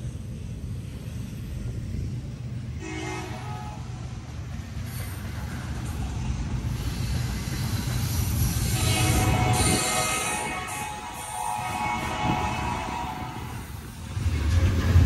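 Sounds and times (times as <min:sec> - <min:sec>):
diesel locomotive drone: 0:00.0 - 0:15.0
train horn blast: 0:02.8 - 0:04.0, 0:08.6 - 0:13.7.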